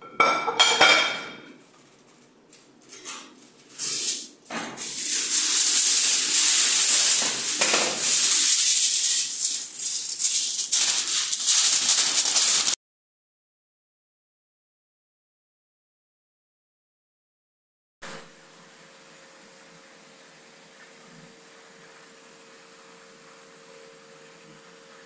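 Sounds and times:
aluminium foil crinkling: 0:01.7 - 0:12.8.

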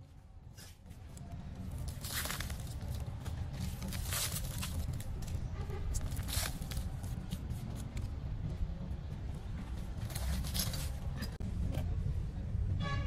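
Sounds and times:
steady low rumble: 0:00.0 - 0:12.8
hands rustling dry leaves: 0:01.8 - 0:07.9.

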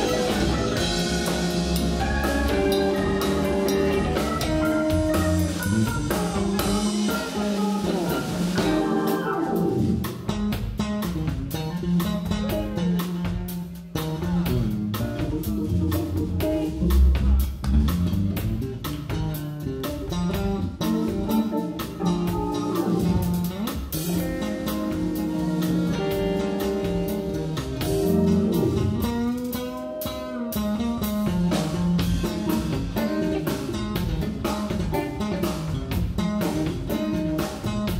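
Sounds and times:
keyboard: 0:00.0 - 0:10.2, 0:20.7 - 0:30.5
drum kit: 0:00.0 - 0:37.9
electric bass: 0:00.0 - 0:37.9
electric guitar: 0:00.0 - 0:37.9.

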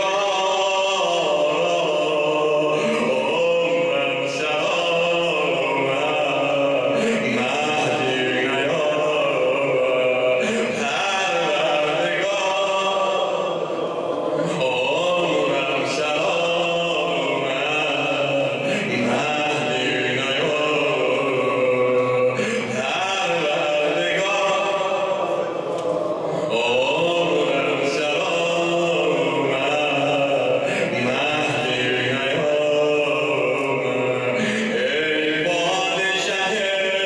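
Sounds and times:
man chanting lament: 0:00.0 - 0:37.0.

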